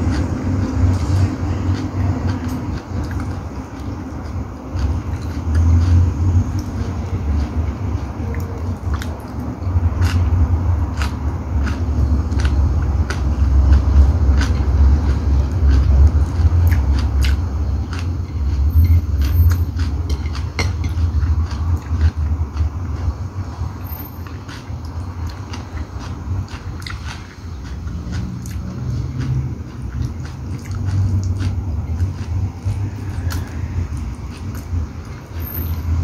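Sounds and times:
person chewing food: 0.0s - 36.0s
steady low rumble: 0.0s - 36.0s
wet mouth clicks and smacks: 30.0s - 32.3s.

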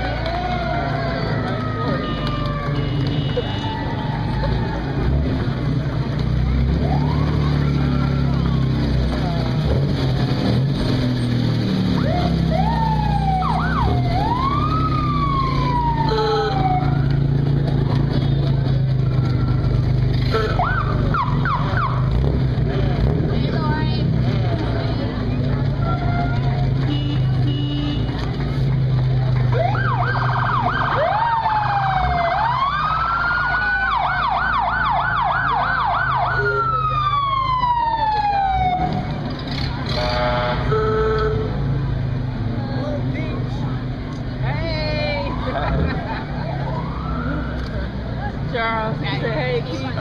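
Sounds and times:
car engines running: 0.0s - 50.0s
siren rising and falling: 6.8s - 8.8s, 11.9s - 17.0s, 29.5s - 39.1s, 46.4s - 47.7s.

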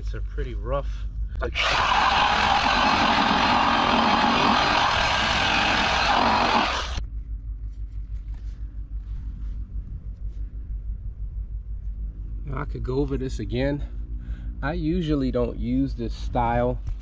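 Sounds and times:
electric buffer whirring: 1.4s - 7.0s.

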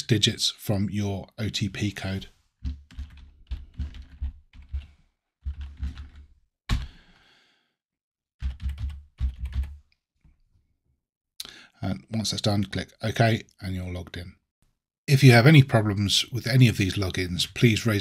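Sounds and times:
keyboard typing: 2.6s - 6.9s, 8.4s - 9.8s.

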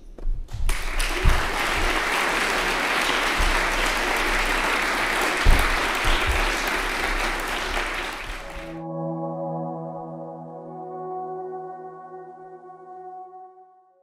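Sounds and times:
audience applauding: 0.7s - 8.8s
dull low thumps: 5.4s - 6.7s.

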